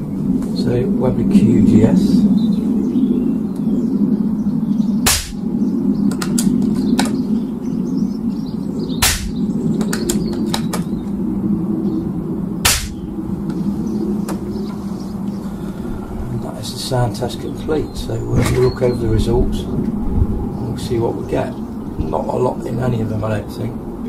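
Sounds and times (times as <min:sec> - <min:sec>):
steady low hum: 0:00.0 - 0:18.3
silenced air rifle shots: 0:05.0 - 0:05.4, 0:09.0 - 0:10.8, 0:12.6 - 0:13.1.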